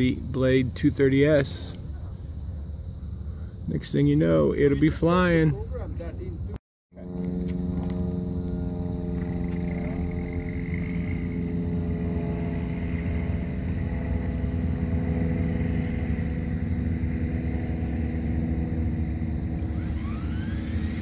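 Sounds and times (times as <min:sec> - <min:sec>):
rc helicopter motor whine: 0:07.0 - 0:21.0.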